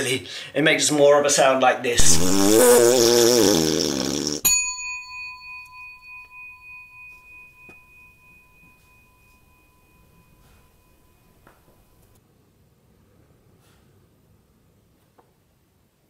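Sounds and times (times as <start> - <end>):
bell-like chime ringing: 4.5 - 12.2.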